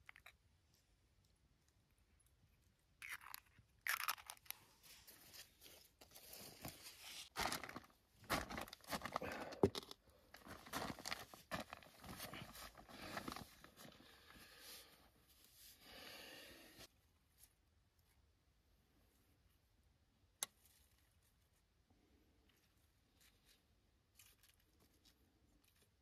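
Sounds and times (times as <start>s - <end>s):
rustling and crinkling: 3.0s - 15.8s, 20.6s - 26.0s.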